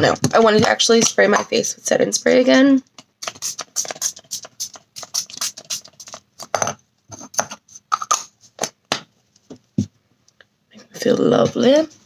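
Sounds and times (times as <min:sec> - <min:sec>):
spray bottle hissing sprays: 0:03.2 - 0:06.2.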